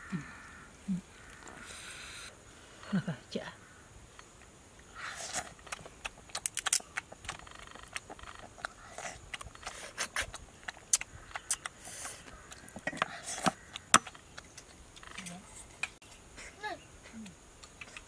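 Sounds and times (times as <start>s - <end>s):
crab shell cracking: 5.6s - 8.8s.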